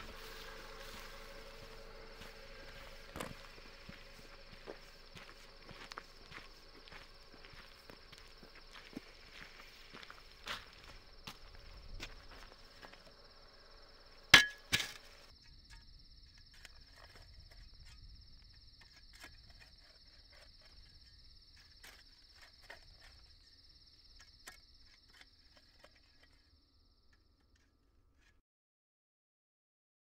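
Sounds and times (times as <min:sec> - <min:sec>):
night insects chirring: 0:00.0 - 0:27.7
faint clicks and scrapes: 0:15.0 - 0:28.4.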